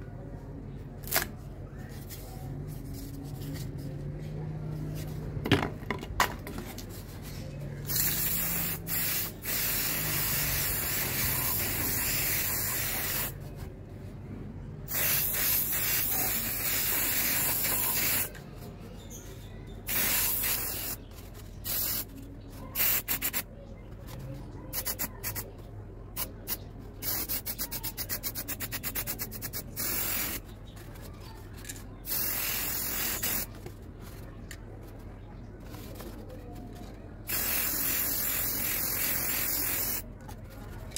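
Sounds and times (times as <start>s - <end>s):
spray paint can hissing: 7.8s - 13.4s, 14.9s - 18.3s, 19.8s - 22.2s, 22.8s - 23.5s, 24.7s - 25.5s, 26.2s - 30.5s, 32.0s - 33.5s, 37.3s - 40.0s.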